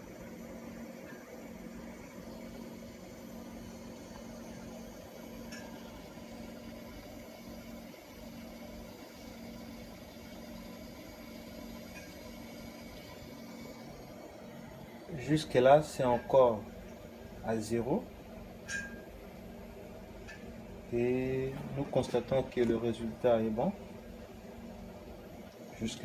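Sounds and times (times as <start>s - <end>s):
low electric motor hum: 0.0s - 26.0s.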